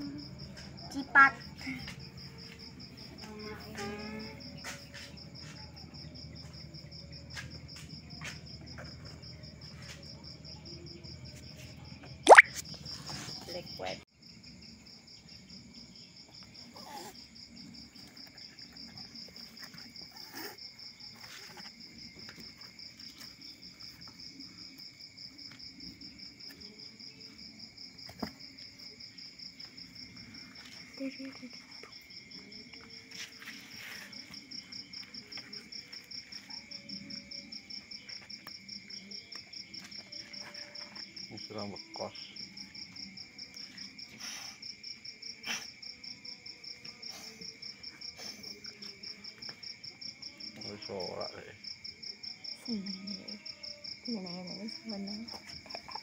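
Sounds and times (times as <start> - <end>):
insects chirping: 0.0 - 56.0.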